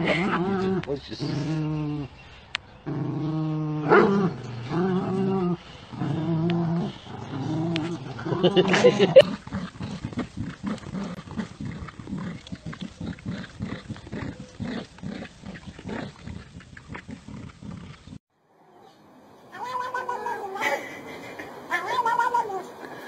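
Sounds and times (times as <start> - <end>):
dogs growling in play: 0.0 - 2.2, 2.8 - 18.2.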